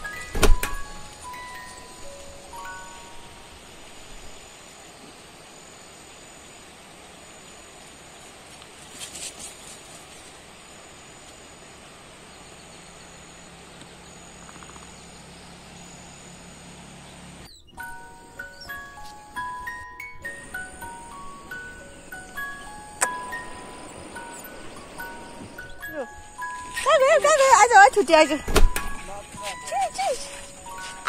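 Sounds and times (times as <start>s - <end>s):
chime-like background music: 0.0s - 3.7s, 17.8s - 28.1s, 28.8s - 31.0s
insects chirping: 0.0s - 31.0s.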